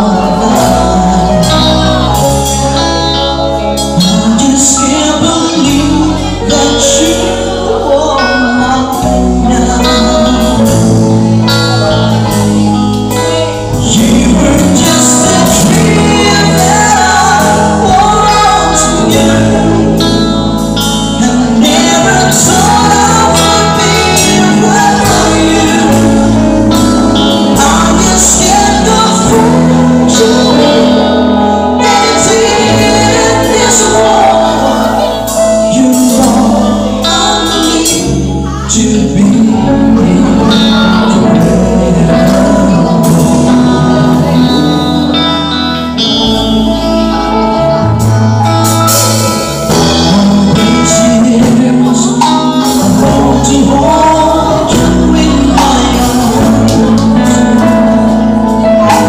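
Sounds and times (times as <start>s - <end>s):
drum kit: 0.0s - 59.0s
electric guitar: 0.0s - 59.0s
man singing: 0.0s - 59.0s
woman singing: 13.0s - 45.2s, 49.3s - 59.0s.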